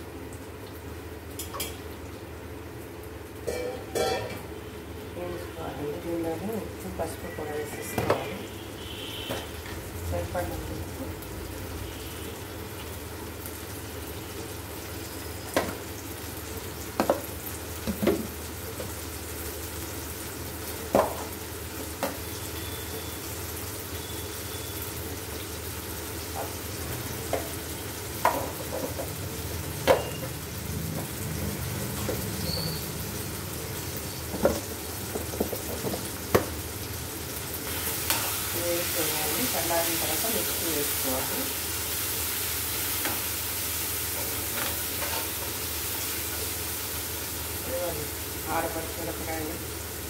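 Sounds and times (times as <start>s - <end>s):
vegetables sizzling in oil: 0.0s - 50.0s.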